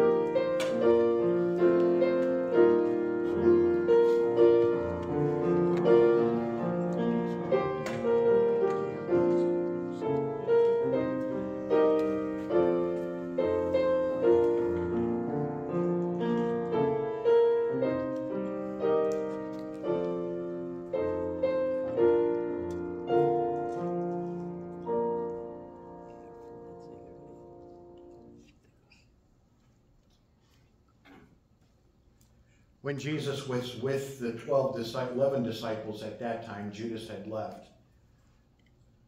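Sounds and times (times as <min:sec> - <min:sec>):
slow solo piano: 0:00.0 - 0:28.4.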